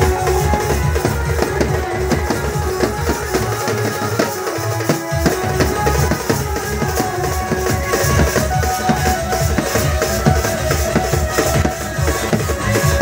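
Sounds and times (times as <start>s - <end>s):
drum band playing dance beat: 0.0s - 13.0s
held melody line: 0.0s - 13.0s
deep bass beat: 5.2s - 13.0s.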